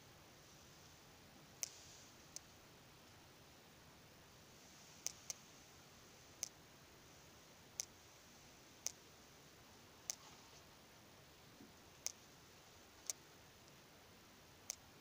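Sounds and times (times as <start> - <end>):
room hiss: 0.0 - 15.0
faint sharp clicks: 1.6 - 2.5, 5.0 - 5.5, 6.4 - 6.6, 7.8 - 8.0, 8.8 - 9.0, 10.0 - 10.3, 12.0 - 12.3, 13.0 - 13.8, 14.6 - 14.9.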